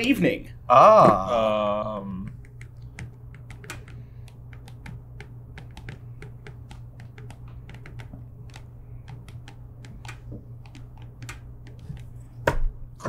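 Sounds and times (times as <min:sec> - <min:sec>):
stylus tapping on screen: 0:02.2 - 0:12.6.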